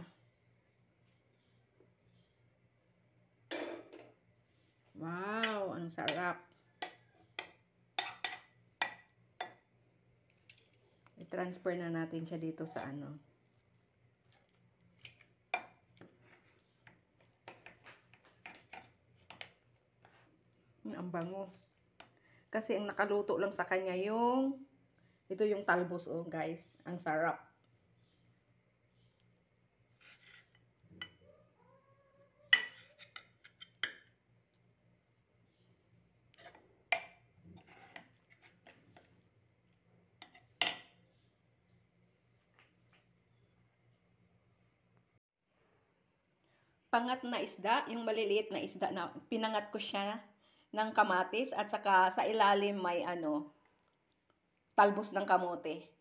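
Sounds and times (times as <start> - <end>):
metal spoon scraping pot: 5.3 - 9.6, 30.0 - 31.2, 32.5 - 34.0, 36.3 - 39.1.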